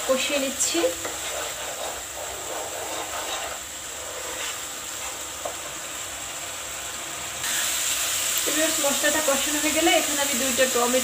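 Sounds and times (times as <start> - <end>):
paste sizzling in hot oil: 0.0 - 11.0.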